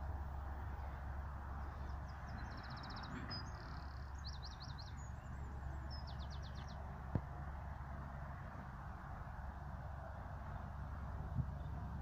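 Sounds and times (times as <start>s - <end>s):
low background rumble: 0.0s - 12.0s
songbird trilling: 1.8s - 6.8s.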